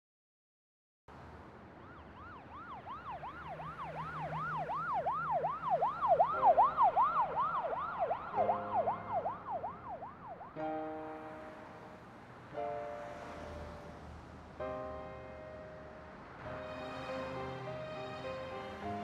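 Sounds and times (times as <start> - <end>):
siren yelping: 1.8 - 10.6.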